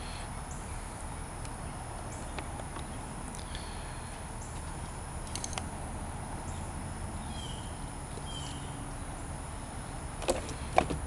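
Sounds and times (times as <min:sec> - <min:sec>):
insects: 0:00.0 - 0:11.0
steady background hiss: 0:00.0 - 0:11.0
bird chirps: 0:06.4 - 0:08.8.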